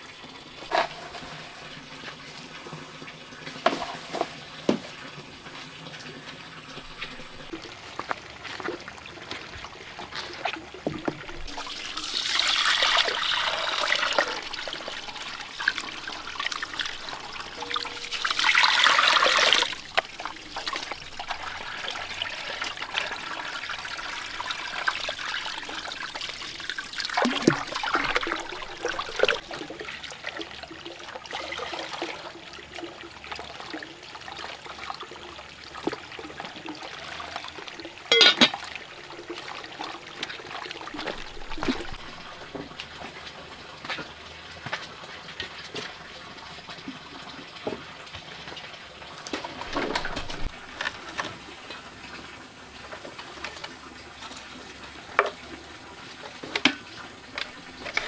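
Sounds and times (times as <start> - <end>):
water pouring and splashing: 0.0 - 58.0
water trickling: 0.0 - 58.0.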